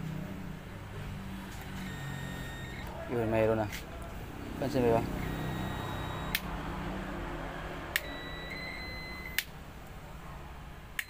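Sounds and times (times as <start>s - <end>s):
multimeter continuity beep: 1.8s - 2.9s, 4.7s - 6.5s, 8.0s - 9.5s
sharp clicks: 6.2s - 6.5s, 7.9s - 8.2s, 9.3s - 9.6s.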